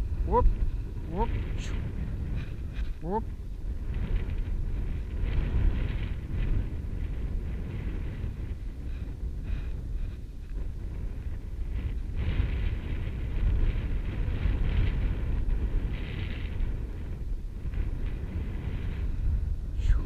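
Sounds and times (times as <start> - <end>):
wind rumbling on microphone: 0.0 - 20.0.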